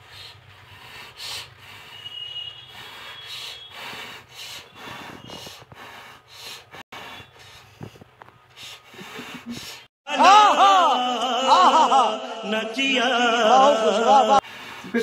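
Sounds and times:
person breathing hard: 0.0 - 9.9, 14.4 - 15.0.

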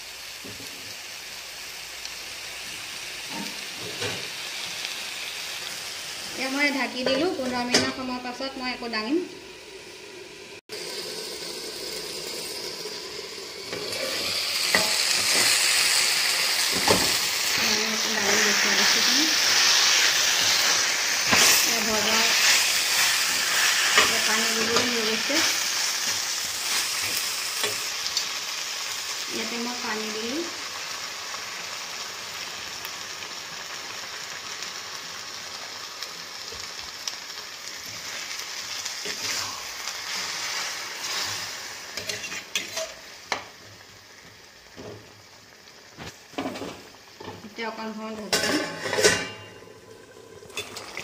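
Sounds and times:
curry sizzling in a frying pan: 0.0 - 51.0
water poured into hot oil: 10.7 - 13.7, 49.9 - 51.0.

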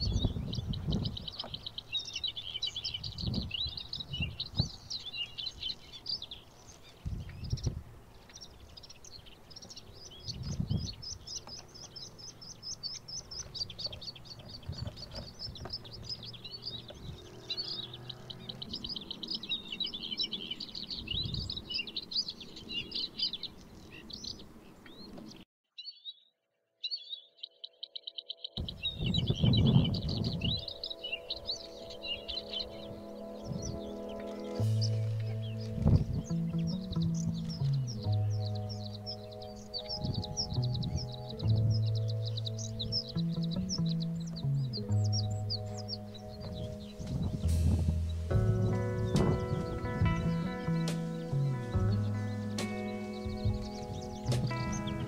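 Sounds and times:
bird singing twittering song: 0.0 - 55.0
low thumps: 40.0 - 55.0.

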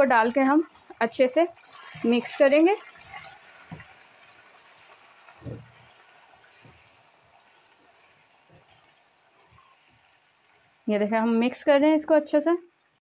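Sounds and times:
chicken sizzling in oil: 0.0 - 11.8
spatula thudding against pan: 5.4 - 5.9.

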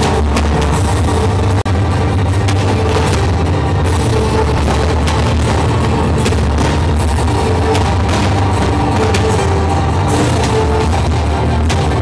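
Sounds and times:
loud music: 0.0 - 12.0.

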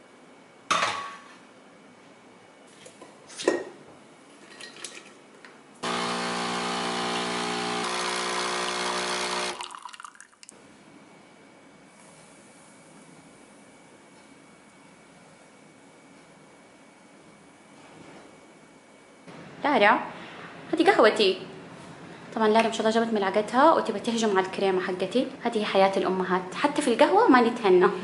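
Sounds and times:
espresso machine pump running: 5.8 - 10.2
coffee pouring into mug: 5.9 - 10.5.

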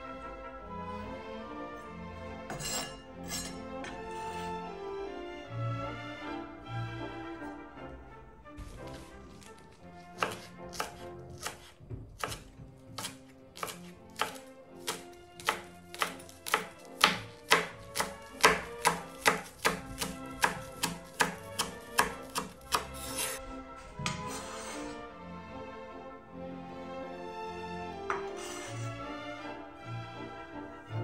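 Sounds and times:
background music: 0.0 - 31.0
knife chopping on cutting board: 10.2 - 23.4, 28.1 - 28.3.

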